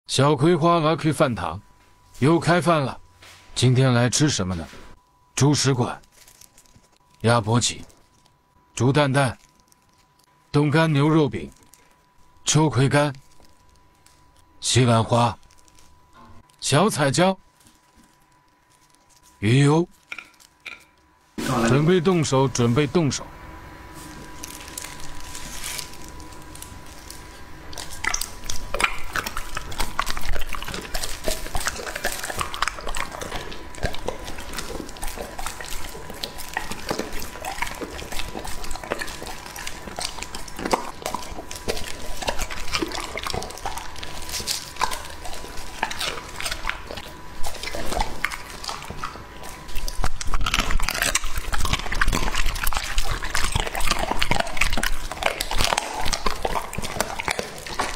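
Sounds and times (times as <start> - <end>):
dog chewing raw meat: 23.8 - 57.9.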